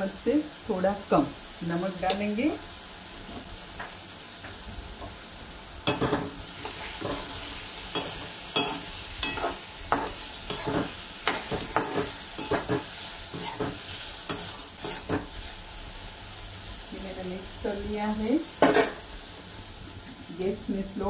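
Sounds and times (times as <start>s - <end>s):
potatoes sizzling in oil: 0.0s - 21.0s
metal spoon scraping a pan: 5.8s - 15.4s.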